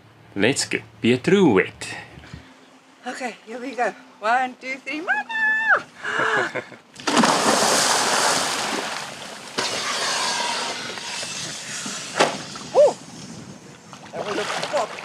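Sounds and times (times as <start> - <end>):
person splashing into water: 7.0 - 9.7
water churning: 7.0 - 15.0.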